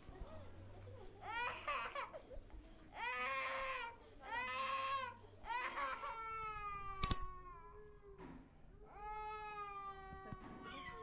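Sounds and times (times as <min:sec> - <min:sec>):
toddler crying: 0:01.2 - 0:02.2, 0:03.0 - 0:08.0, 0:08.9 - 0:11.0.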